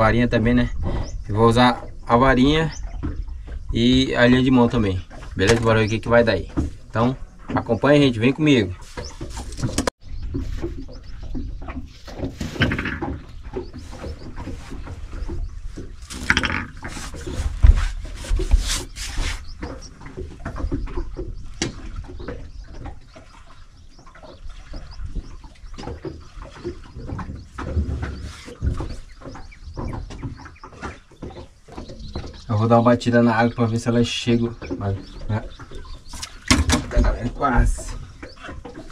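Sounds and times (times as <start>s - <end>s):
fishing gear knocking and clattering: 0.8s - 38.9s.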